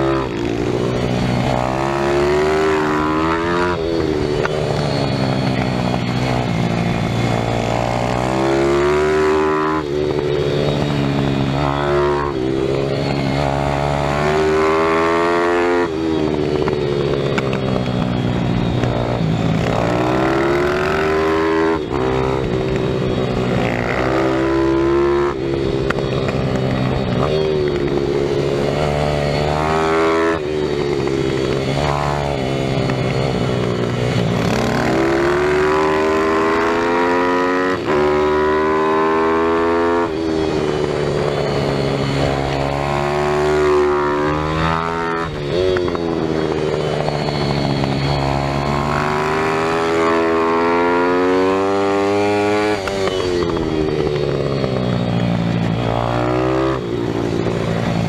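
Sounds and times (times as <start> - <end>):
motorbike engine revving: 0.0 - 58.0.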